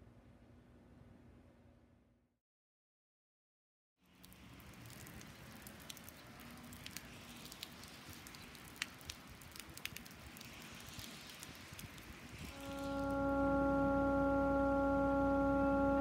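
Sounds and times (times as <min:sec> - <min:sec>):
raindrops ticking: 0:04.0 - 0:13.2
light rain hiss: 0:04.0 - 0:16.0.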